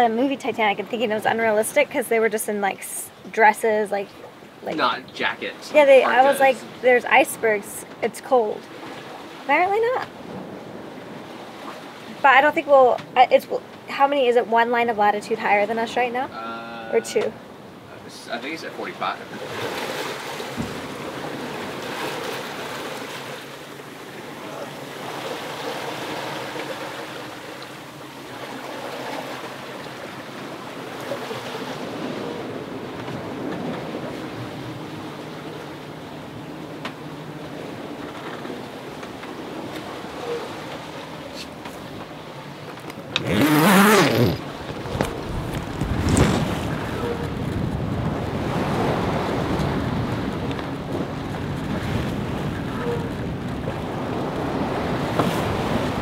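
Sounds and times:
sea water rushing past hull: 0.0s - 14.0s, 15.6s - 56.0s
wind: 0.0s - 56.0s
dull thump: 20.5s - 20.8s
wind buffeting microphone: 43.2s - 56.0s.

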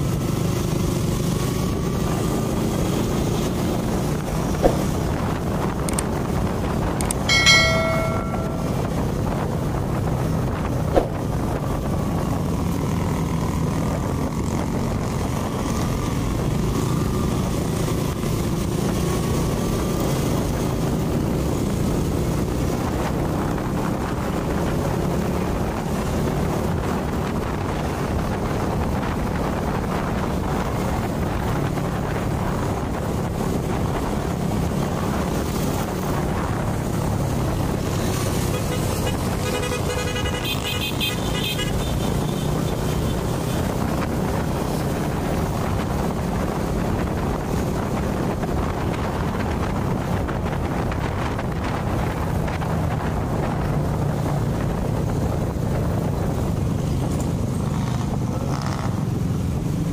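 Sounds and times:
scooter engine drone: 0.0s - 23.4s
road and wind noise: 0.0s - 59.9s
vehicle horn: 38.5s - 43.2s.

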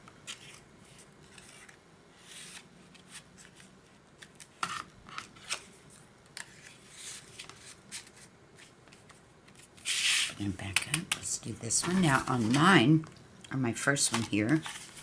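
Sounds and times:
paper rustling and scraping: 0.2s - 5.8s, 6.4s - 10.4s, 11.7s - 12.9s, 14.1s - 15.0s.

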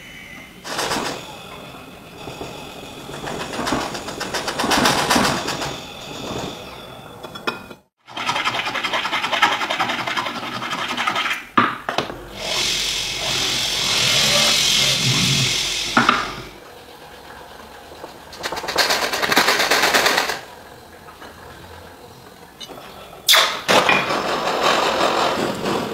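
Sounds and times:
hand file scraping metal: 8.2s - 11.4s
rotary tool grinding metal: 12.1s - 16.6s.

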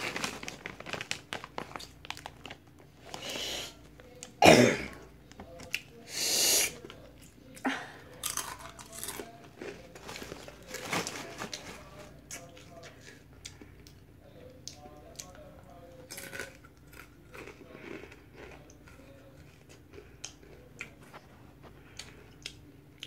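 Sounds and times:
crunching and chewing chips: 0.0s - 4.4s, 6.7s - 23.0s
person coughing: 4.4s - 5.0s.

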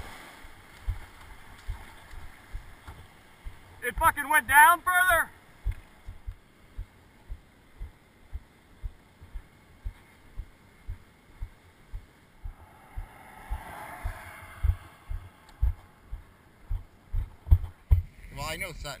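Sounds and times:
soft rushing hiss: 0.0s - 19.0s
footsteps as dull thumps: 0.8s - 4.2s, 5.6s - 12.6s, 14.6s - 18.1s.

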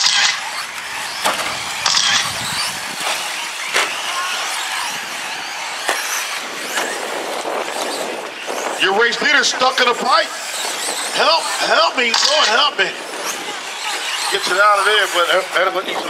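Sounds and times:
trucks landing knocks: 0.0s - 4.1s
rc truck motors whirring: 0.0s - 16.0s.

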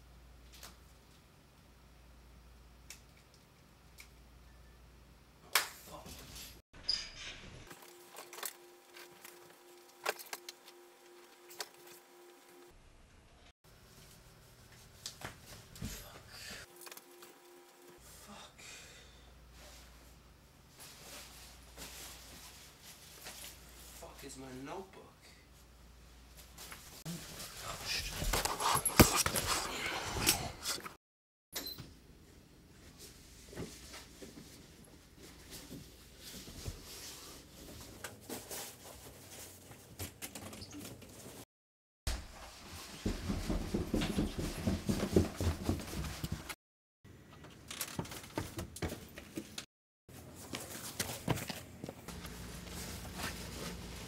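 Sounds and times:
soft footsteps: 42.2s - 46.6s
clothes rustling: 48.1s - 54.0s.

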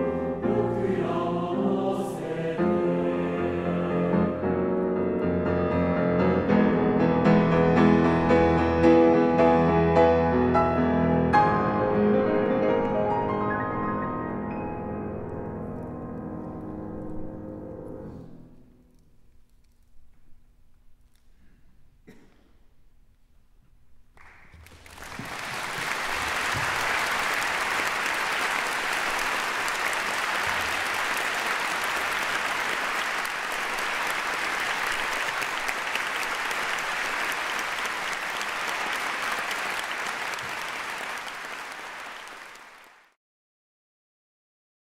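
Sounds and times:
audience applauding: 24.2s - 43.2s.

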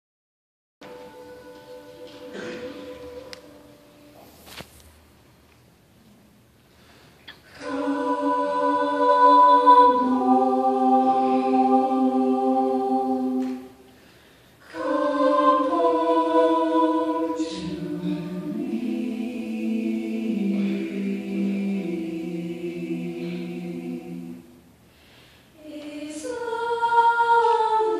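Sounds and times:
choir singing held chords: 0.8s - 4.2s, 7.4s - 27.9s.

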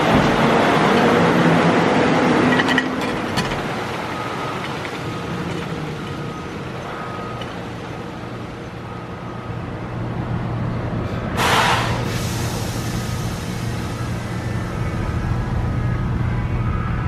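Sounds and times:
diesel truck engine running: 0.0s - 17.0s
air brakes hissing: 11.1s - 14.8s.

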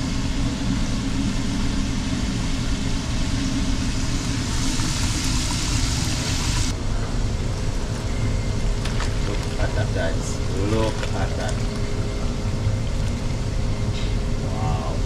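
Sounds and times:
low mechanical rumble: 0.0s - 15.0s
hiss: 3.7s - 6.7s.

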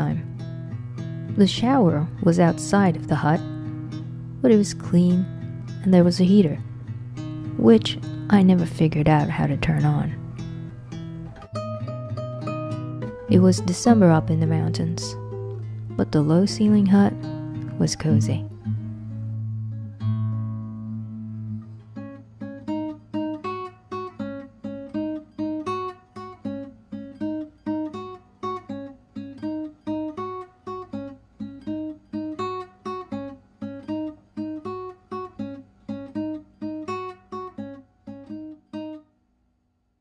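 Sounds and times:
acoustic guitar picking: 0.0s - 39.1s.

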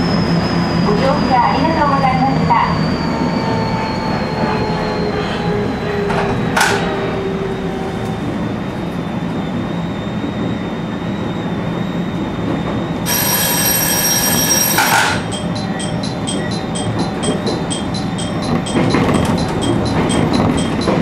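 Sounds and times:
electric train running: 13.0s - 21.0s
electronic ringing tone: 13.1s - 21.0s.

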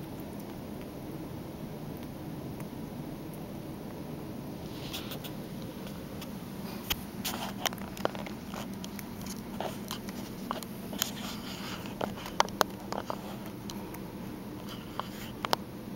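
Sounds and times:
steady low hum: 0.0s - 15.9s
kitten moving about: 4.6s - 15.6s
small clicks and taps: 5.1s - 14.0s, 14.6s - 15.6s.

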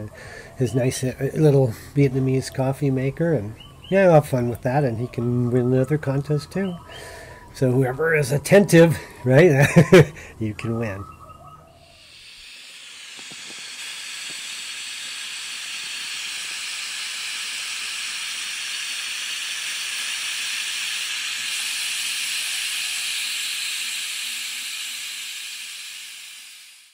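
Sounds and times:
steady hiss: 8.7s - 10.5s, 11.8s - 26.9s.

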